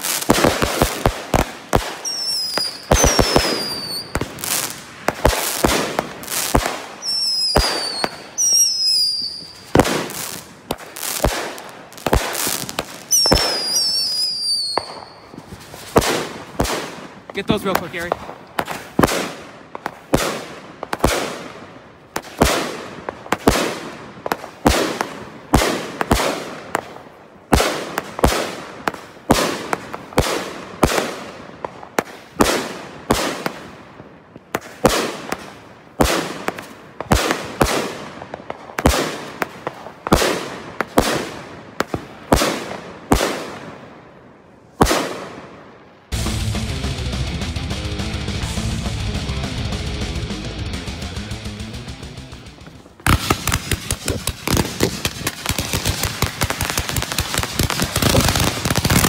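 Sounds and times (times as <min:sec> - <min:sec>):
fireworks bangs echoing: 0:00.0 - 0:46.7, 0:52.2 - 0:59.0
music: 0:46.1 - 0:52.8.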